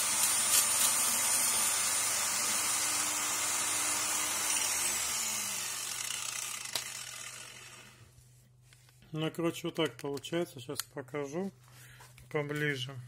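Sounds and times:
angle grinder grinding metal: 0.0 - 8.1.

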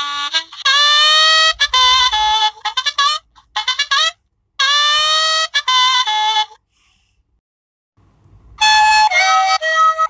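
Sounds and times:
recorded saxophone riff: 0.0 - 6.0
recorded harmonica tune: 0.0 - 6.6, 8.6 - 10.0.

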